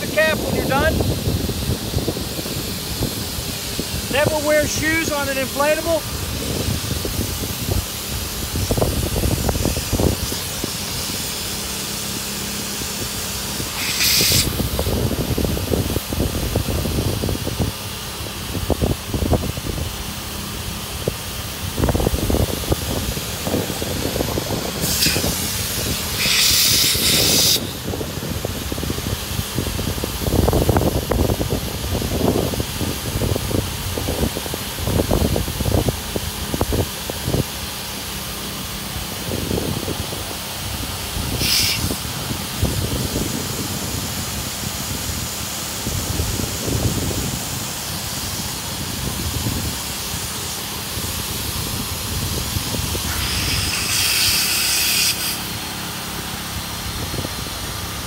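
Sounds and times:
low rumbles: 0:00.0 - 0:13.8
air hissing: 0:00.0 - 0:58.0
electric air pumps running: 0:00.0 - 0:58.0.

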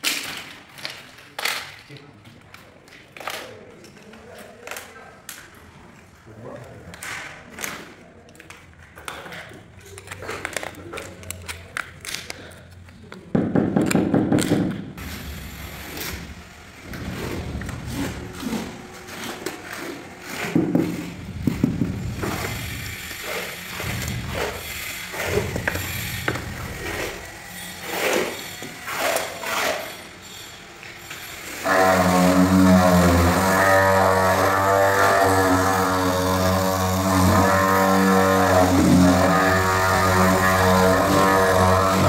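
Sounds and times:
scraping on porcelain tiles: 0:16.9 - 0:33.1.

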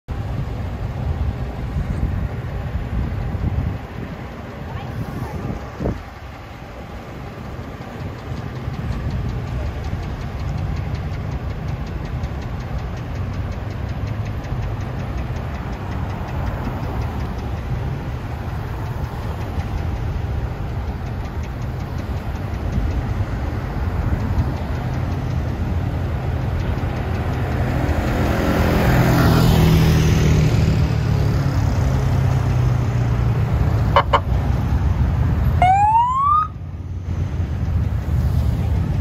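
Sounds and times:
vehicles passing: 0:00.0 - 0:39.0
engine idling nearby: 0:00.1 - 0:39.0.

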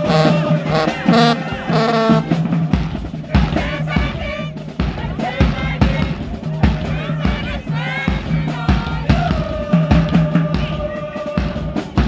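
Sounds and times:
brass horns sustained notes: 0:00.0 - 0:02.5
heavy bass drum beats: 0:00.0 - 0:12.0.

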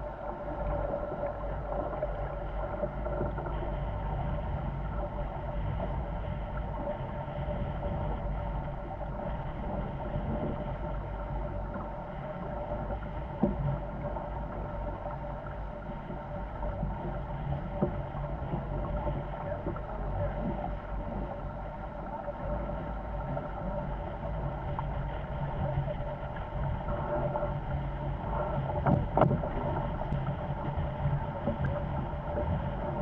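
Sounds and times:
water rushing along hulls: 0:00.0 - 0:33.0
wind noise on microphone: 0:00.0 - 0:33.0.

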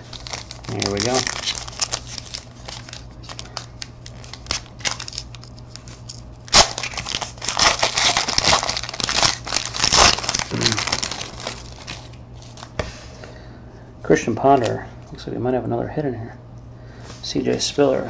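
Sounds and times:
foil wrapper crinkling and tearing: 0:00.0 - 0:12.7
steady low hum: 0:00.0 - 0:18.0.

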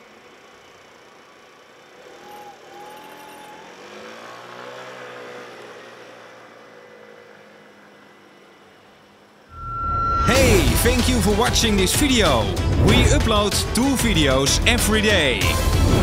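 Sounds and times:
street traffic noise: 0:00.0 - 0:16.0
vehicle engine revving: 0:01.6 - 0:07.5.

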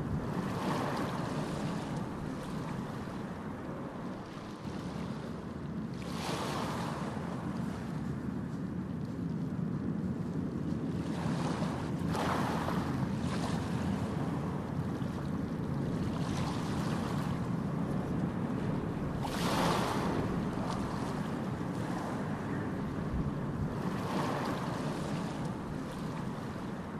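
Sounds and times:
sea waves splashing: 0:00.0 - 0:09.2, 0:10.2 - 0:26.9
wind on the microphone: 0:00.0 - 0:26.9
steady low rumble: 0:12.7 - 0:26.9.

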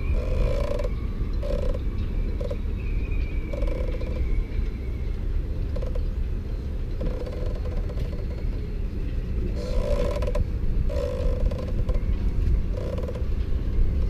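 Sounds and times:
steady low rumble: 0:00.0 - 0:14.0
rag squeaking on metal: 0:00.1 - 0:02.6, 0:09.6 - 0:12.0.

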